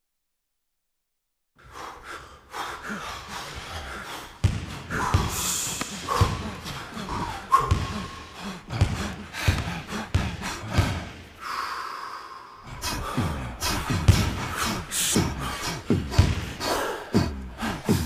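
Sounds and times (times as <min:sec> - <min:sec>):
heavy breathing: 0:01.6 - 0:18.0
basketball bouncing on gym floor: 0:04.4 - 0:11.2, 0:15.9 - 0:16.6.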